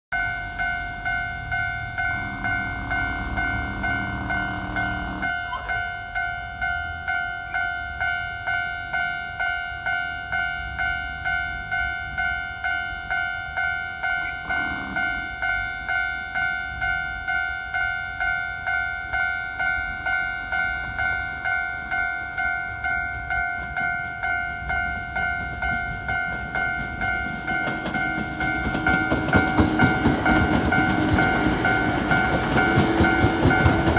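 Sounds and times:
train approaching with rail noise: 0.1s - 33.9s
level crossing alarm ringing: 0.2s - 33.9s.

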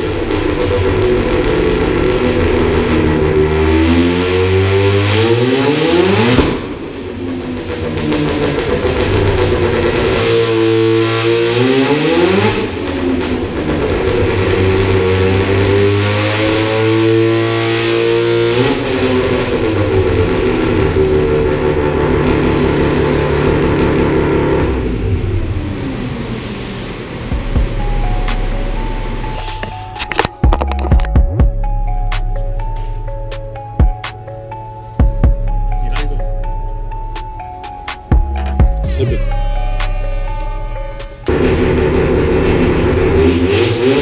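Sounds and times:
rotary engine revving: 0.0s - 29.6s.

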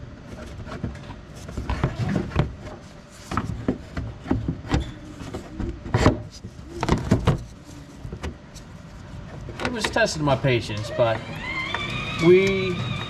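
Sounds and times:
plastic knocking and scraping: 0.4s - 8.4s.

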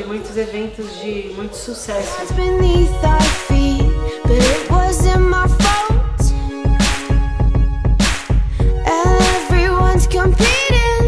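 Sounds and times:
music with heavy bass beat: 2.3s - 11.0s.

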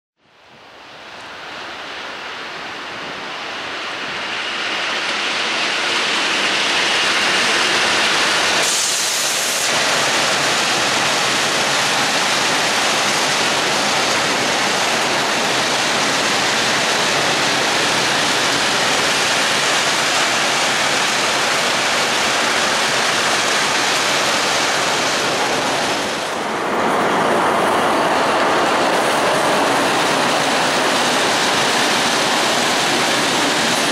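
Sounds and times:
second freight train passing: 0.3s - 33.9s
steel wheels clattering on rails: 3.0s - 33.9s
brief high hiss: 8.6s - 9.8s.

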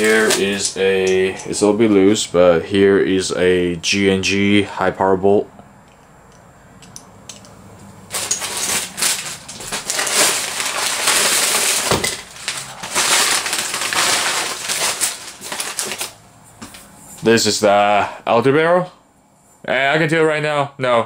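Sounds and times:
paper and plastic crinkling: 0.0s - 1.7s, 8.1s - 16.9s.

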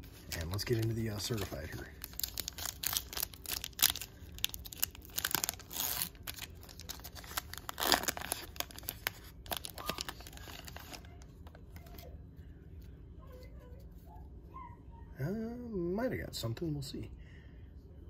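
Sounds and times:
foil wrapper tearing and crinkling: 0.1s - 11.2s.

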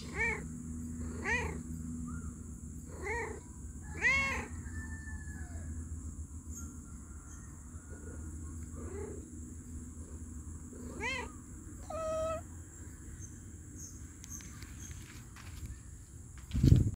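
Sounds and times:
cat meowing: 1.1s - 1.6s, 2.9s - 4.5s, 10.8s - 12.5s.

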